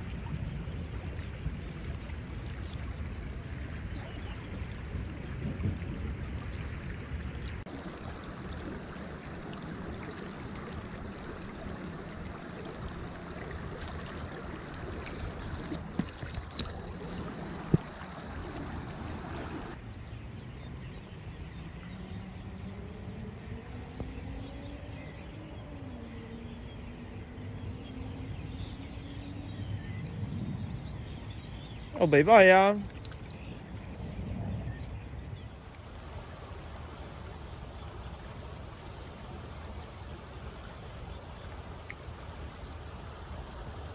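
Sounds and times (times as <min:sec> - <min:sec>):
creek water rippling over stones: 0:00.0 - 0:19.8, 0:32.0 - 0:33.6, 0:35.6 - 0:43.9.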